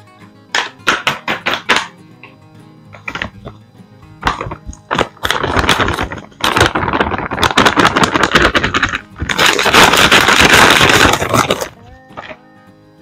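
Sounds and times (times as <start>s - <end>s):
paper bag crinkling: 4.4s - 12.4s.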